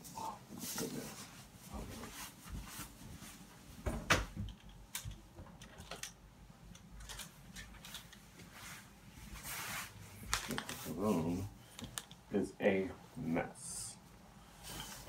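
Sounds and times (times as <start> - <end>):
fabric rustling: 7.8 - 11.5.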